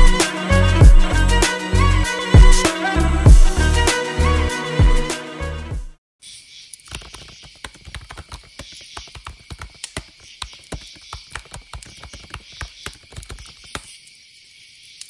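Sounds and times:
crickets chirping: 0:08.3 - 0:15.0.

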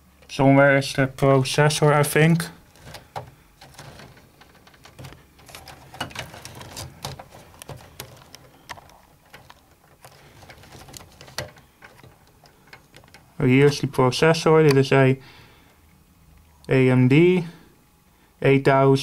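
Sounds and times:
faint low hum: 0:00.0 - 0:19.0
cables clicking and rustling: 0:01.2 - 0:15.0.

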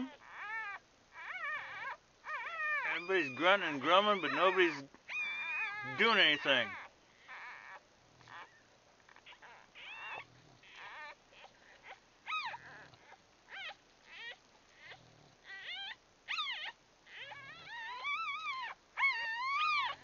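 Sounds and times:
puppies whimpering and squeaking: 0:00.0 - 0:20.0.

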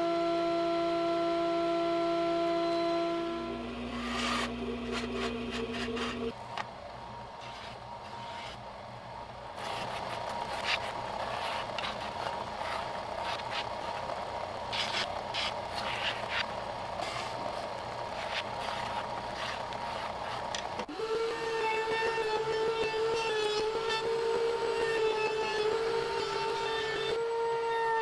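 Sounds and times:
belt sander running: 0:00.0 - 0:06.4, 0:18.2 - 0:27.6
wood being sanded: 0:09.6 - 0:14.0.

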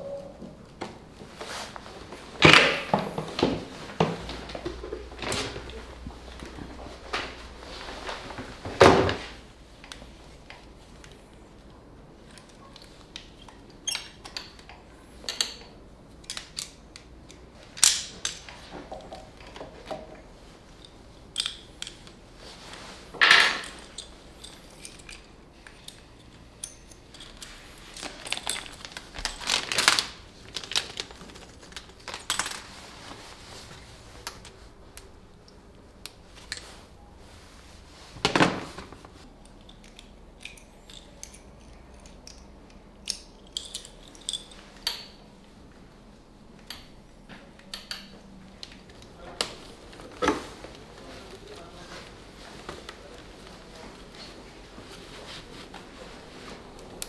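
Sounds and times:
tools clinking on metal: 0:23.3 - 0:28.7, 0:39.6 - 0:45.2.

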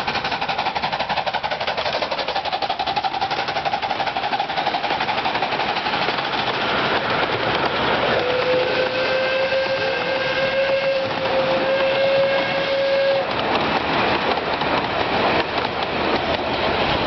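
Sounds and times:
train wheels clattering on track: 0:00.0 - 0:17.0
steam locomotive whistle: 0:08.1 - 0:13.3.

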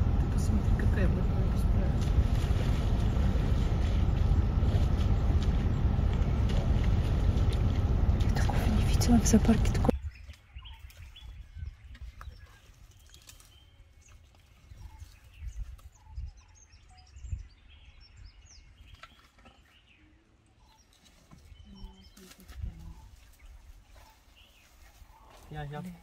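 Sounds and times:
low uneven rumble: 0:00.0 - 0:16.5
small birds chirping: 0:07.1 - 0:26.0.

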